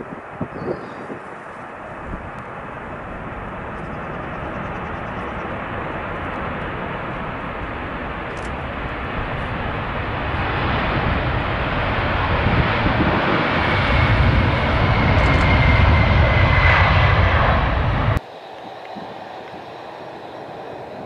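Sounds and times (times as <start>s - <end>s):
jet engine roar: 0.0s - 21.0s
faint high whine: 18.2s - 21.0s.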